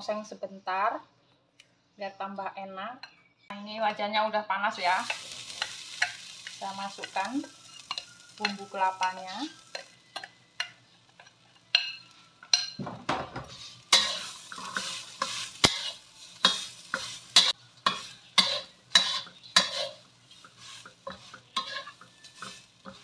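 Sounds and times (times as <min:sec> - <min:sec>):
light sizzle: 0:04.5 - 0:23.0
metal spatula scraping wok: 0:04.8 - 0:23.0.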